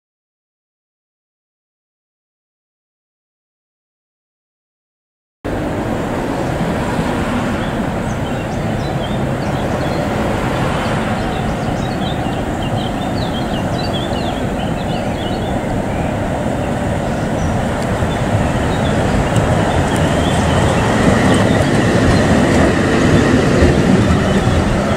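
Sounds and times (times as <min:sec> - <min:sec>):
birds chirping: 0:05.5 - 0:24.9
vehicle rumble: 0:05.5 - 0:24.9.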